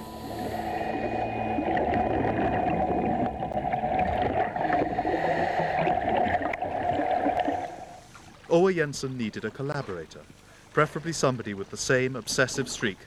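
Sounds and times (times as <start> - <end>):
constant drone: 0.0 - 6.6
underwater bubbling and gurgling: 0.0 - 13.0.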